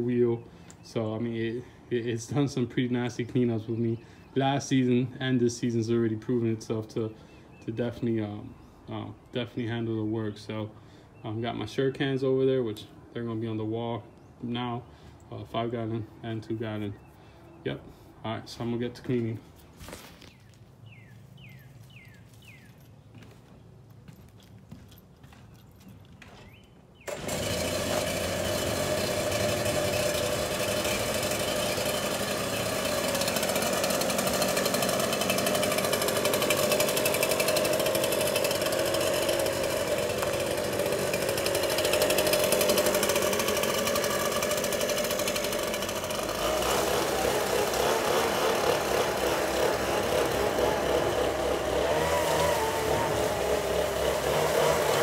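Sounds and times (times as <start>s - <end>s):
leaf blower engine running: 27.0s - 55.0s.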